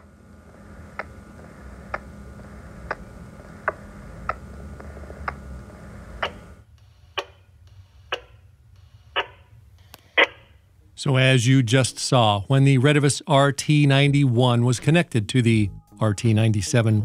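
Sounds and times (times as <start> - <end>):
low steady hum: 0.0 - 17.0
sharp radio clicks: 6.2 - 8.4, 9.1 - 10.5.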